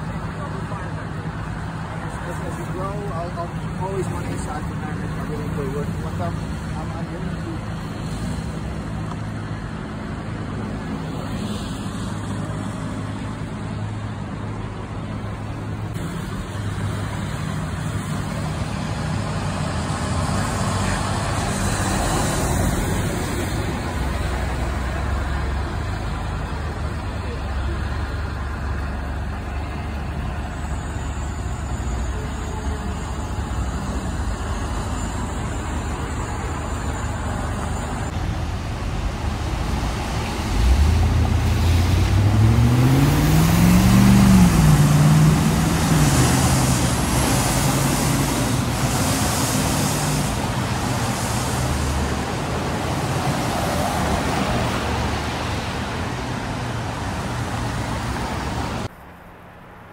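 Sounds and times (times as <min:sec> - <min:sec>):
traffic: 0:00.0 - 0:59.9
tyres on wet road: 0:00.0 - 0:59.9
garbage truck engine accelerating: 0:15.8 - 0:55.1.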